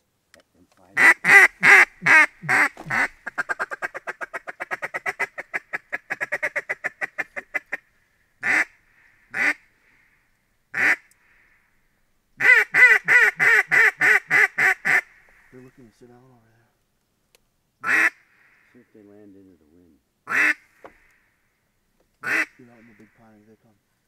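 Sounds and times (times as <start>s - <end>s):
duck call quacks: 1.0s - 7.8s, 8.4s - 8.7s, 9.3s - 9.6s, 10.7s - 11.0s, 12.4s - 15.1s, 17.8s - 18.2s, 20.3s - 20.7s, 22.2s - 23.1s.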